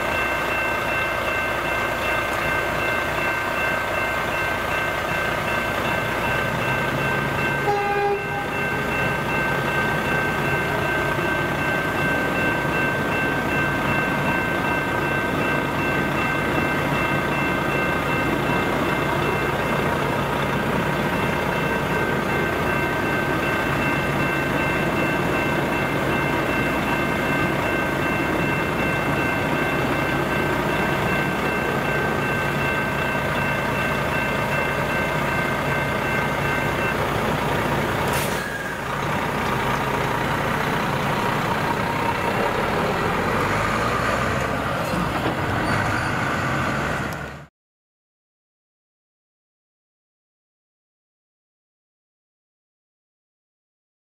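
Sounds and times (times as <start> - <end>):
level-crossing electronic bells ringing: 0.0 - 44.1
diesel truck idling: 8.5 - 47.5
truck pulling away: 8.5 - 47.5
truck air-brake hiss: 38.0 - 38.8.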